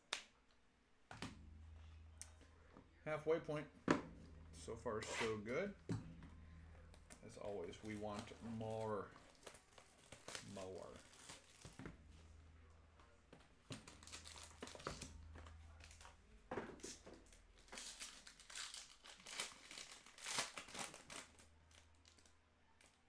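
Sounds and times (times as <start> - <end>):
faint low hum: 0.0 - 23.0
foil packaging crinkling: 6.9 - 11.8, 13.7 - 16.2, 16.9 - 23.0.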